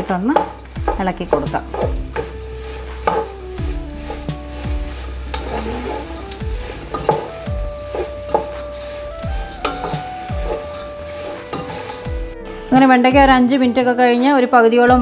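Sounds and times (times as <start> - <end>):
okra sizzling in hot oil: 0.0 - 14.8
soft instrumental melody: 0.0 - 15.0
spatula scraping pan: 0.1 - 12.8.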